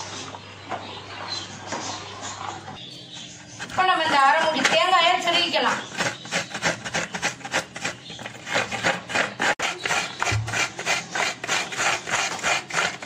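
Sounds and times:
coconut rasping on grater: 0:03.5 - 0:13.0.

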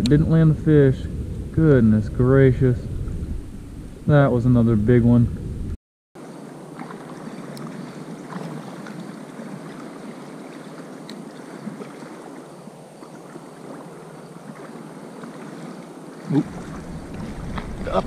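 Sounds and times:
shallow river water rushing: 0:06.2 - 0:18.0.

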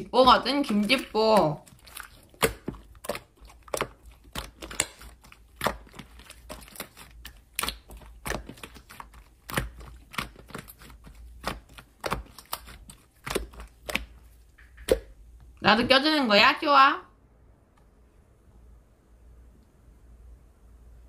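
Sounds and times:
slime clicking and popping: 0:00.2 - 0:15.2.

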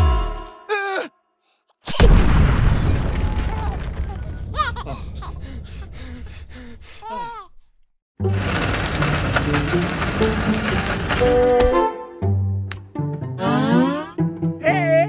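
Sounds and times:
cartoon crash and explosion: 0:01.9 - 0:06.5.

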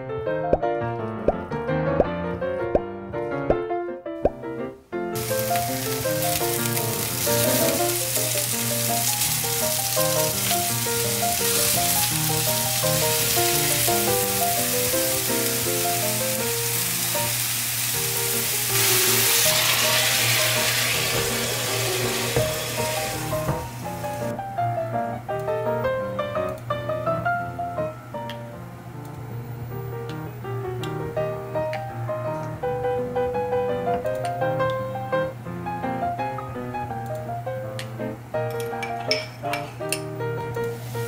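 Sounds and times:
light background music: 0:00.2 - 0:41.0
meatballs sizzling in oil: 0:05.2 - 0:24.3, 0:40.8 - 0:41.0.

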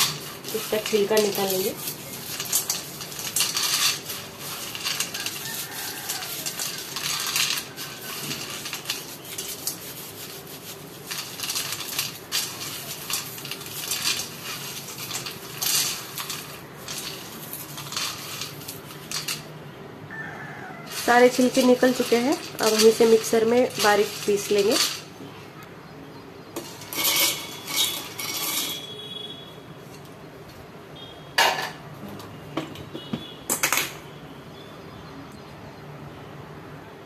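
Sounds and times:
nuts clicking onto pan: 0:00.0 - 0:09.8, 0:11.0 - 0:19.5, 0:20.9 - 0:25.1, 0:33.5 - 0:34.0
peanuts rustling between palms: 0:00.0 - 0:25.1.

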